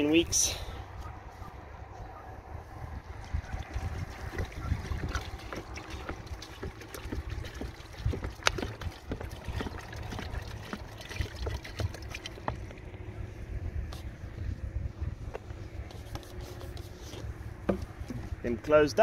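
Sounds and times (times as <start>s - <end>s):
wind rumbling on microphone: 0.0s - 18.7s.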